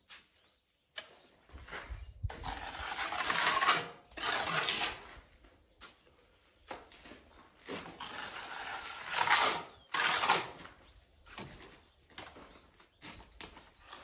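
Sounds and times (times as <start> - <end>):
steel trowel scraping mortar: 2.3 - 5.1, 7.8 - 10.7.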